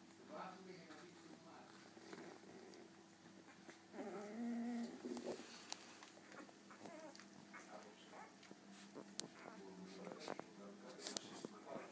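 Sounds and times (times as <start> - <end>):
puppies whimpering: 2.2 - 5.5, 6.2 - 10.5, 11.1 - 11.9
puppy whining cry: 3.3 - 5.1, 6.2 - 9.6.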